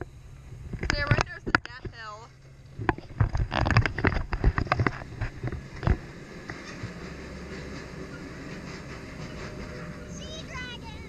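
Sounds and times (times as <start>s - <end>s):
kiddie train clattering on track: 3.5s - 11.0s.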